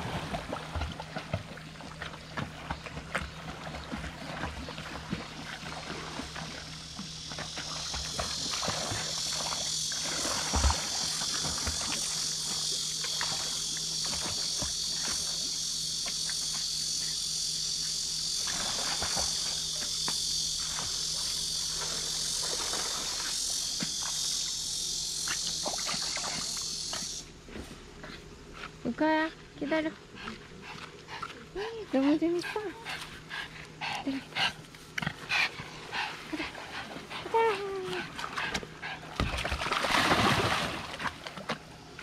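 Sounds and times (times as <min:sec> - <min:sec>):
insects chorus: 0:00.0 - 0:42.0
dog splashing in water: 0:36.3 - 0:41.8.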